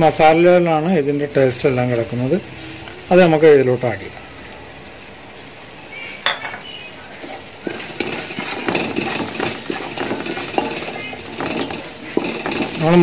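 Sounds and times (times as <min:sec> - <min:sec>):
wooden spatula scraping pot: 0:07.2 - 0:13.0.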